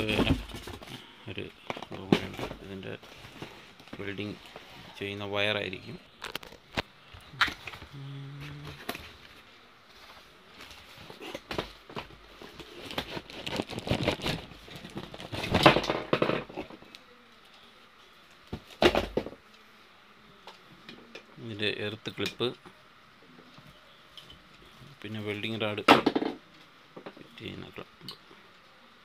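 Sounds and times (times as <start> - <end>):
packaging rustling and crinkling: 0.0 - 5.0, 6.1 - 7.9, 8.5 - 16.9.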